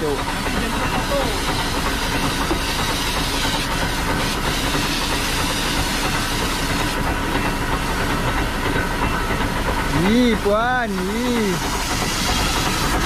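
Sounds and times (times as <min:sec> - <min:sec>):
pump droning: 0:00.0 - 0:13.0
fire hose water jet hissing: 0:00.7 - 0:07.1, 0:11.0 - 0:13.0.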